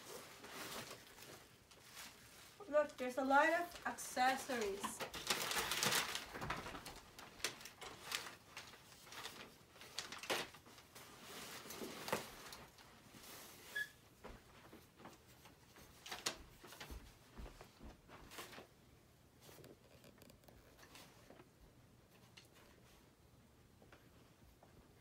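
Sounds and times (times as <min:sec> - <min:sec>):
paper and plastic packaging rustling: 0:00.0 - 0:23.2
brief squeak: 0:13.7 - 0:14.0.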